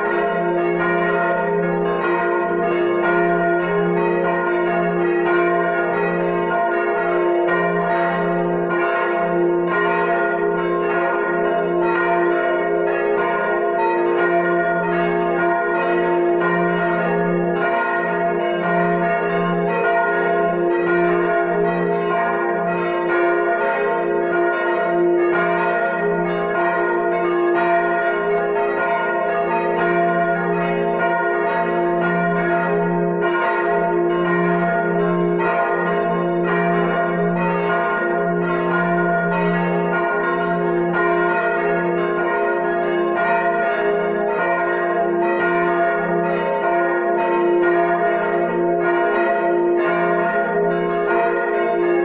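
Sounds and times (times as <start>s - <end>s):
church bells ringing: 0.0s - 52.0s.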